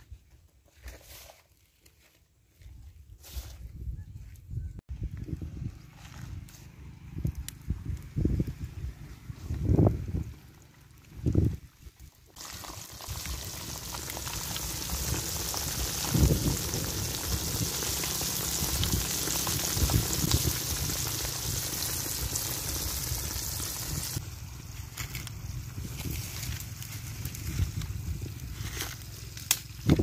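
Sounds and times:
fish sizzling in hot oil: 12.3s - 24.2s.

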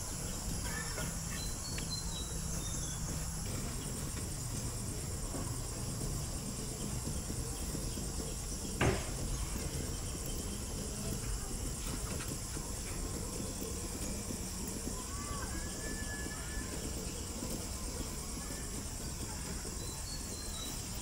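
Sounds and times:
insects chirring: 0.0s - 21.0s
short knock: 8.8s - 9.2s.

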